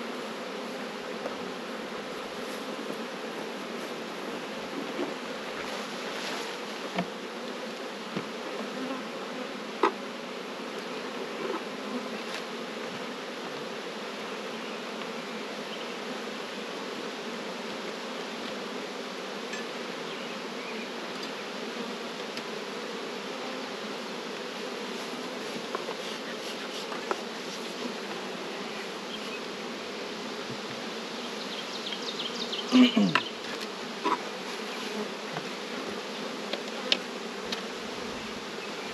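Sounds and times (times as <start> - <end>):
bees buzzing: 0.0 - 38.9
knocks on wooden hive boxes: 6.9 - 7.2, 8.1 - 8.7, 9.8 - 10.0, 30.4 - 30.9.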